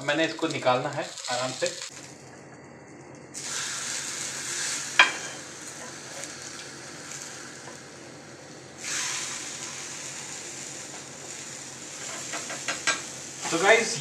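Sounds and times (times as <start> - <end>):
eggs sizzling on hot pan: 0.0 - 14.0.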